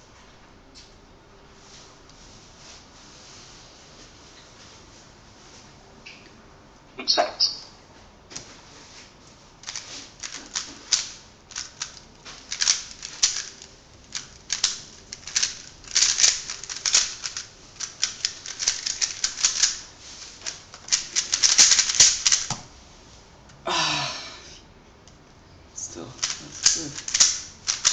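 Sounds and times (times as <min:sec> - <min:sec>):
puzzle cube plastic clicking: 0:09.6 - 0:22.6, 0:26.2 - 0:27.9.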